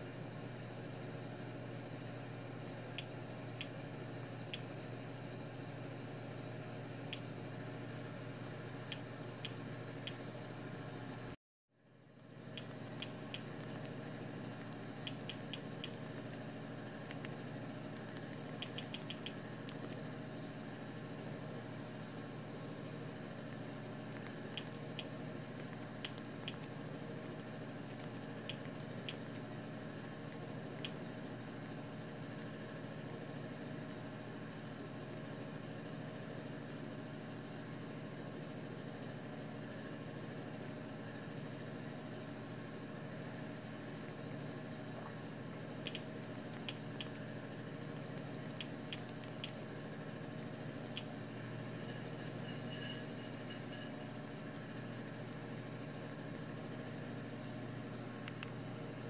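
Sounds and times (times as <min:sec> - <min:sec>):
background hum and hiss: 0:00.0 - 0:59.0.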